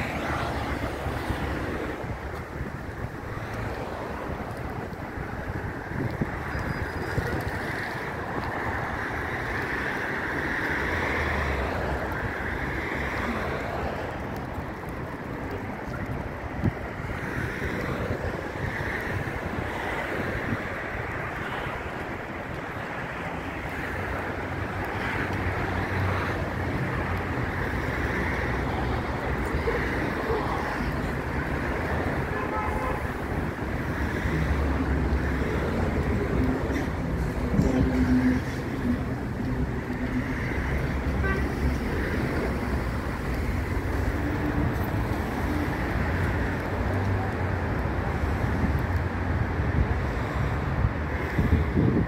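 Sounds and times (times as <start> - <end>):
road traffic hiss and rumble: 0.0 - 52.0.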